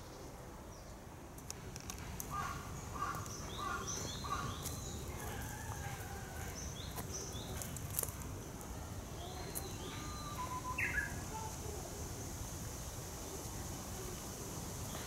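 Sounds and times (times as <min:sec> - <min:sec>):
small birds calling: 0:02.3 - 0:08.1, 0:09.0 - 0:11.6
warbler whistled song: 0:03.3 - 0:05.5, 0:09.1 - 0:11.3.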